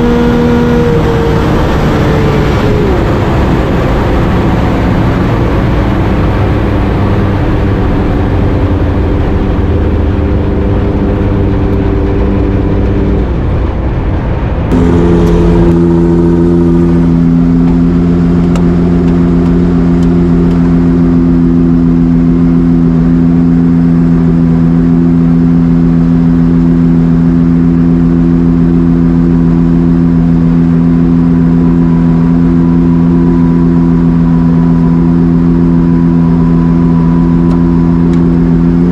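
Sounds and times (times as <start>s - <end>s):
heavy wind rush: 0.0s - 21.1s
racing car engine running: 0.0s - 38.9s.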